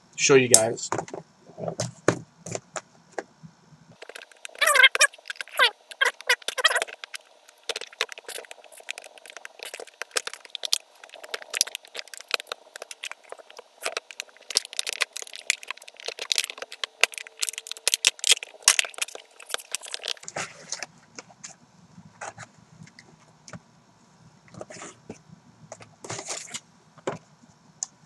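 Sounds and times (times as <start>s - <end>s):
plastic packaging crackling: 4.0s - 21.5s.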